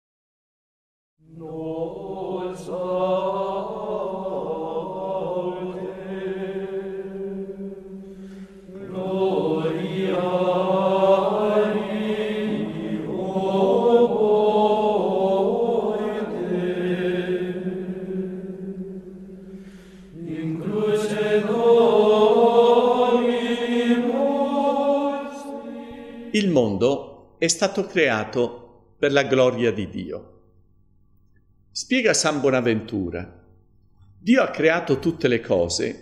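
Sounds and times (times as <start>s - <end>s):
voices chanting: 1.2s - 27.0s.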